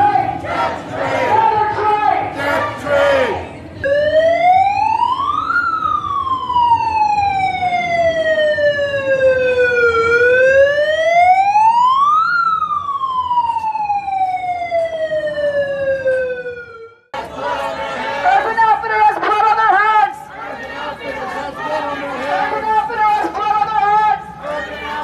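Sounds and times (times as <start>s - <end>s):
megaphone siren wailing: 3.8s - 17.1s.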